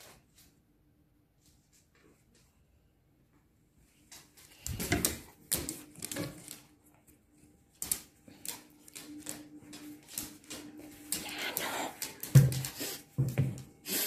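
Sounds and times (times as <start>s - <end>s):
paws and claws on tiled floor: 3.8s - 14.0s.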